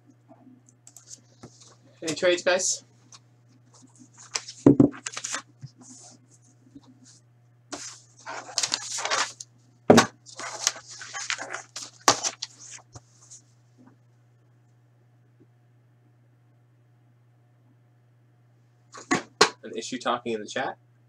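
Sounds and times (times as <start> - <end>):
steady low hum: 0.0 - 21.0
objects rustling and clattering: 3.0 - 13.5.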